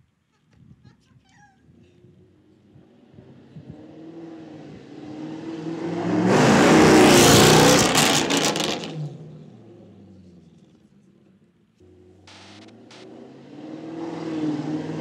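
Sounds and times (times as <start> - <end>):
sharp exhaust cracks: 11.8 - 13.1
sports car driving past: 11.8 - 15.0.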